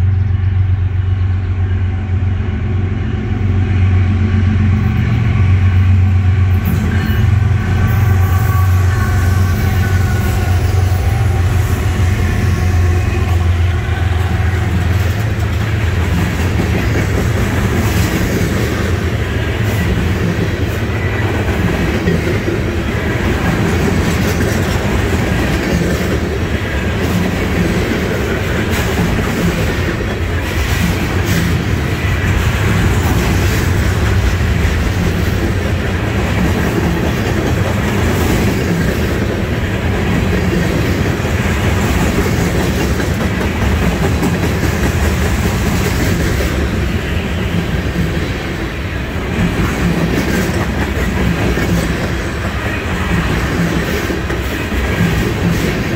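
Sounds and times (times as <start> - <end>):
freight train rumble: 0.0 - 55.9
steel wheels clattering on rails: 12.8 - 55.9.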